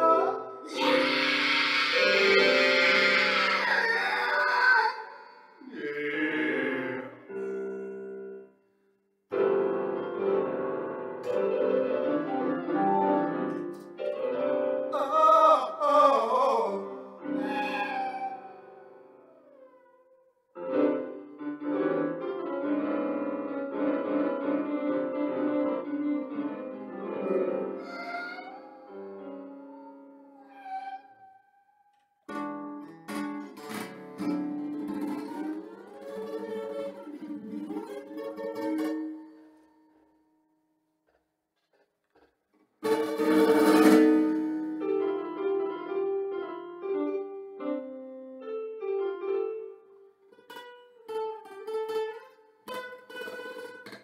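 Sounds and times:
electronic keyboard melody: 9.3 - 15.4, 20.6 - 30.4, 43.2 - 50.2.

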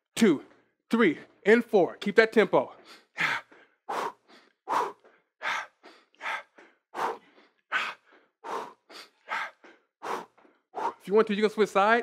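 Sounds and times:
hard rhythmic breathing: 2.7 - 11.3.

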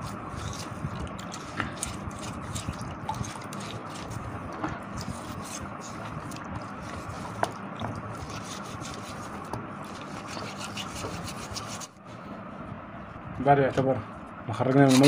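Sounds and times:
small water splashes: 0.3 - 8.0.

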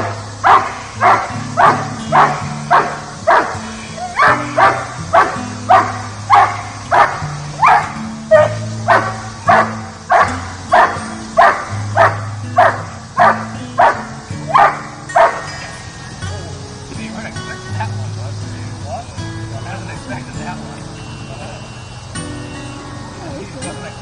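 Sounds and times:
dog barking forcefully: 0.0 - 15.5
background music low notes: 0.0 - 24.0.

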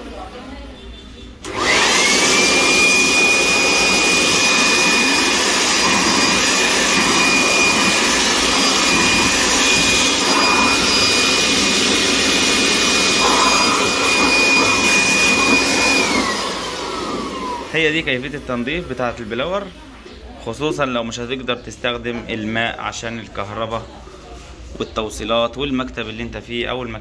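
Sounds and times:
electric air blower whine: 1.4 - 19.2.

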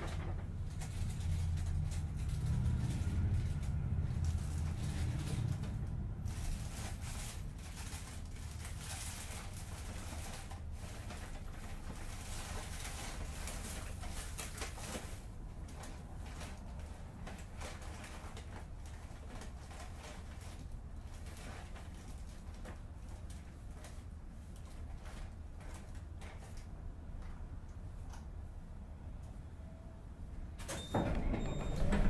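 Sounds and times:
bus diesel engine rumble: 0.0 - 20.3, 30.9 - 32.0.

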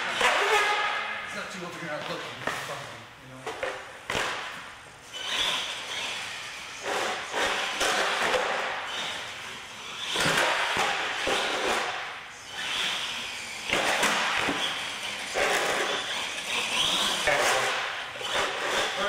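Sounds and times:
toy truck motor surging: 5.0 - 19.0.

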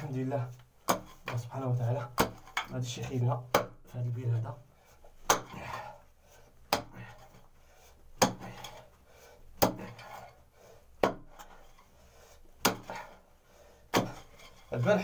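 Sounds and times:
loosened soil rustling: 13.0 - 15.0.

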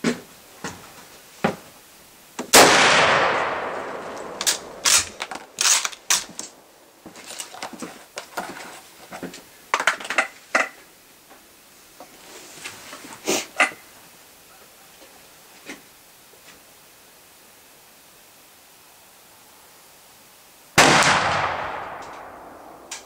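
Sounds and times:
rifle shot with echo: 2.5 - 5.6, 20.8 - 23.0
rifle bolt clicks and clacks: 4.2 - 6.6.

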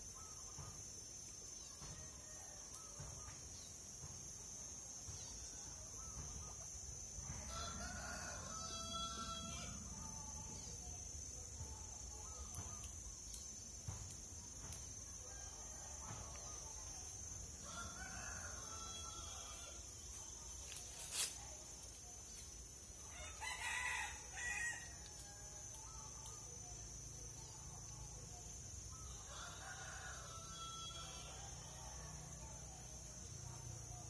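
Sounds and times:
rooster crowing: 7.4 - 9.9, 17.6 - 19.8, 23.1 - 25.0, 29.2 - 32.3.

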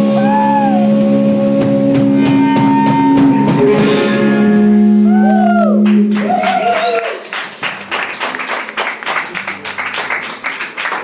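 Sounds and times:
rock band holding final chord: 0.0 - 5.2
swooping guitar tones: 0.0 - 7.9
audience clapping: 5.8 - 11.0.

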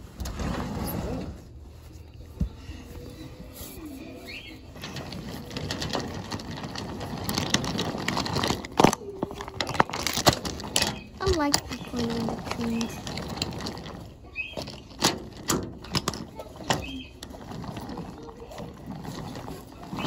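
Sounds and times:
toy train wheels rumbling on track: 4.3 - 20.0.

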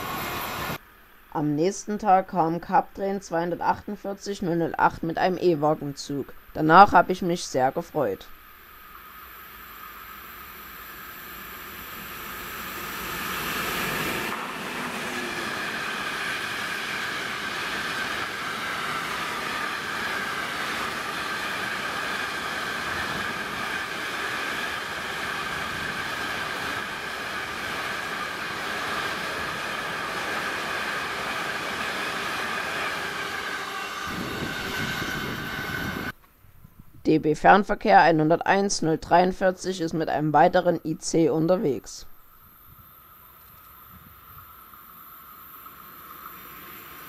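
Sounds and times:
wheels rushing on rail: 0.0 - 1.3, 8.3 - 36.2, 42.5 - 47.0
freight train passing: 0.0 - 36.2, 44.5 - 47.0.

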